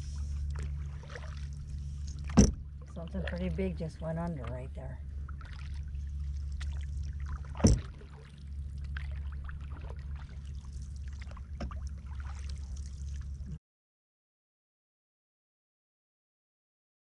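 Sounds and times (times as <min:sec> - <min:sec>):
paddle splashes and drips: 0:00.0 - 0:13.6
steady low rumble: 0:00.0 - 0:13.6
knock on hull: 0:02.3 - 0:02.6.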